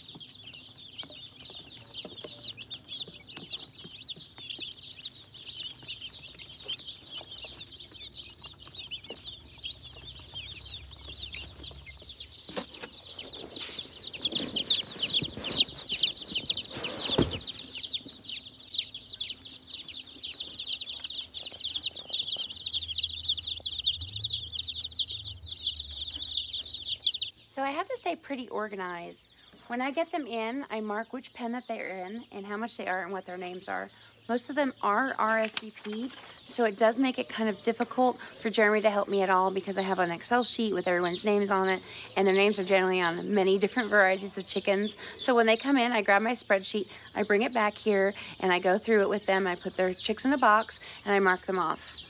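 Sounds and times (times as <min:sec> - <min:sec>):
baby chicks peeping: 0:00.0 - 0:52.0
rustling noise: 0:10.9 - 0:17.8.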